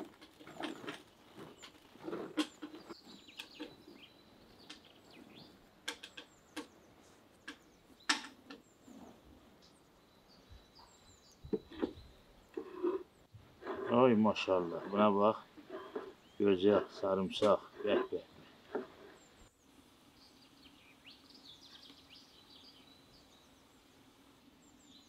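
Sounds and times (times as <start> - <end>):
dried beans rattling: 0.0 - 4.7, 13.6 - 19.3
small birds chirping faintly: 0.0 - 25.0.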